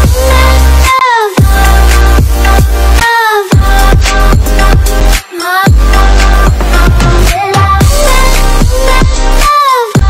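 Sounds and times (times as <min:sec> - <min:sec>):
electronic dance music: 0:00.0 - 0:10.0
rising synth line: 0:03.6 - 0:08.8.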